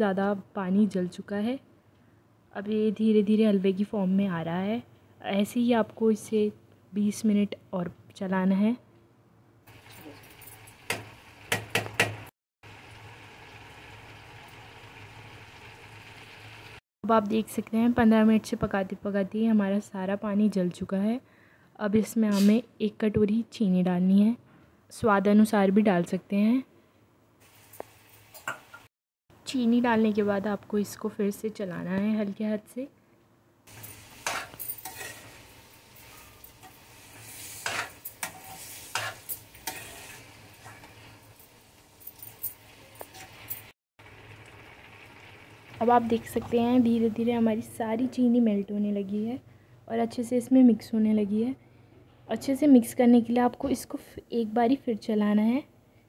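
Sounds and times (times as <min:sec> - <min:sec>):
low sizzle: 0:09.7 - 0:16.8, 0:27.4 - 0:28.9, 0:33.6 - 0:49.4
ladle knocking on iron pan: 0:10.9 - 0:12.3
steel spoon scraping a pan: 0:33.7 - 0:41.4, 0:42.2 - 0:43.7
soft bubbling simmer: 0:44.0 - 0:46.7.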